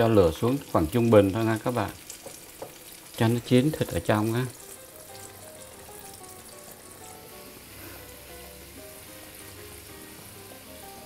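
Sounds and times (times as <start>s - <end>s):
chicken sizzling in hot oil: 0.0s - 11.0s
soft background music: 3.8s - 11.0s.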